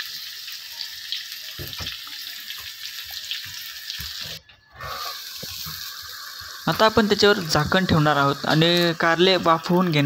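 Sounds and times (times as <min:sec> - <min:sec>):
food sizzling in hot oil: 0:00.0 - 0:10.0.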